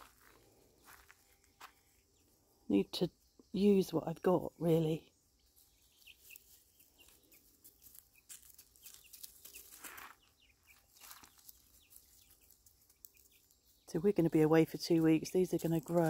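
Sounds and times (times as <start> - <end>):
chicks peeping: 4.7 - 16.0.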